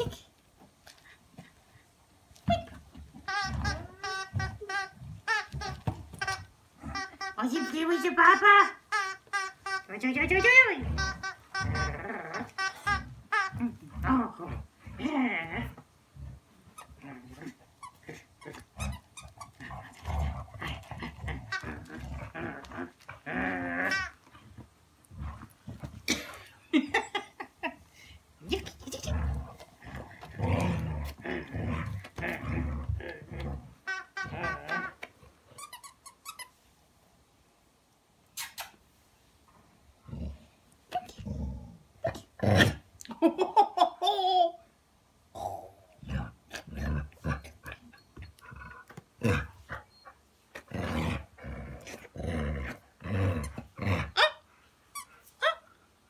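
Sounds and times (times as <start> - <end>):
dogs play-growling: 0.9 - 7.3, 10.3 - 26.1, 28.8 - 35.2, 46.0 - 54.2.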